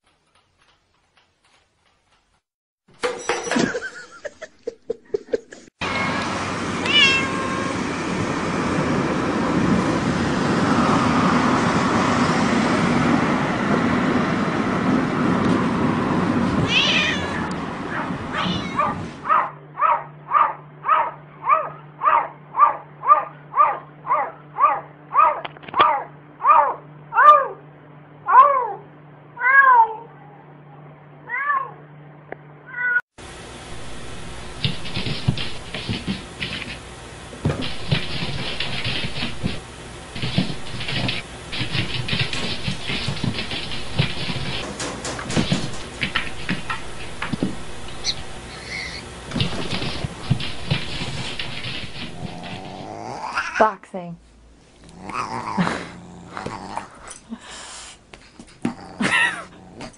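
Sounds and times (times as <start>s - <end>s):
cat meowing: 5.8s - 7.8s, 16.6s - 17.5s, 18.3s - 19.0s.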